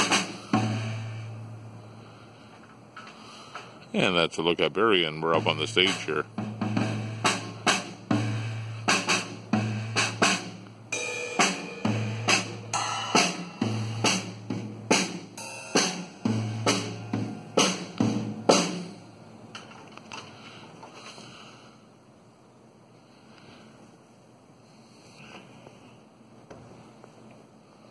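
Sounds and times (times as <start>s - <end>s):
acoustic drum kit playing: 0.0s - 2.2s, 3.2s - 19.1s.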